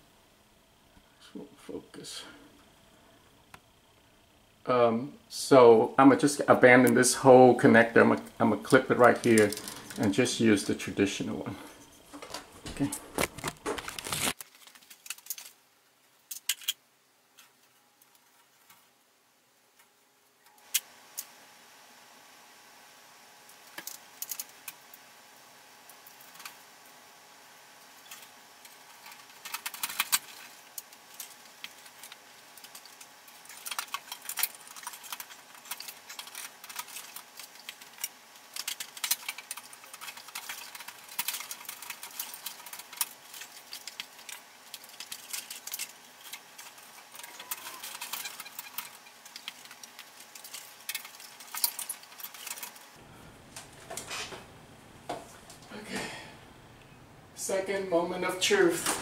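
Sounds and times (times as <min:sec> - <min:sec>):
wires clicking and rattling: 0:08.0 - 0:10.8, 0:11.8 - 0:18.9, 0:23.5 - 0:25.1, 0:25.8 - 0:26.9, 0:27.7 - 0:55.8.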